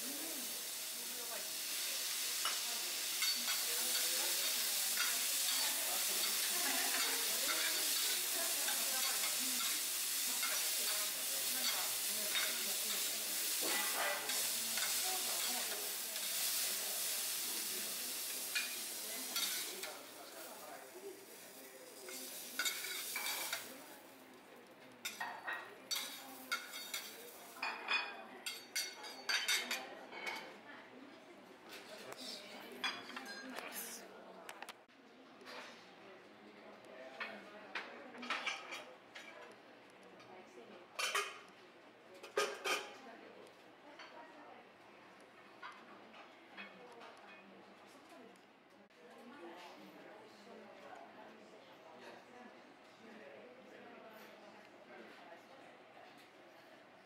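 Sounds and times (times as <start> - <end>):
food sizzling on a griddle: 0.0 - 24.4, 25.0 - 29.7
metal spatulas clicking and scraping: 3.2 - 9.8, 25.9 - 27.2.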